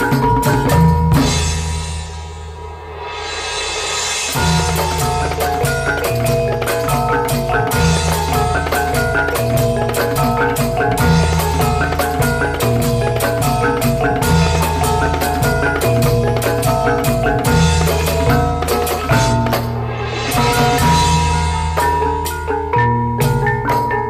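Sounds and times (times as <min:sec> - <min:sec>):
percussive strikes: 0:00.0 - 0:24.0
tuned percussion melody: 0:00.0 - 0:24.0
loud bass line: 0:04.4 - 0:23.4.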